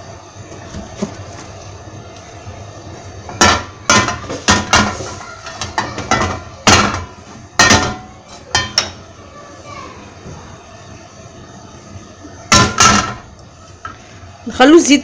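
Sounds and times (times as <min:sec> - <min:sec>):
frying pan clanking on stove grate: 0:03.3 - 0:09.0, 0:12.5 - 0:13.3.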